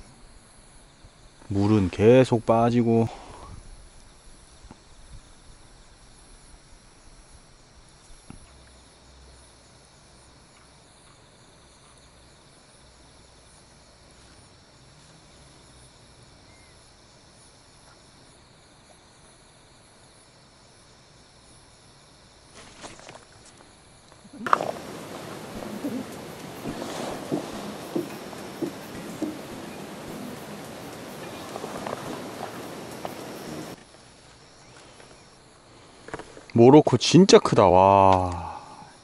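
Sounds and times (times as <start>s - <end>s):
crickets chirring: 0.0s - 39.0s
soft tap: 24.5s - 33.3s.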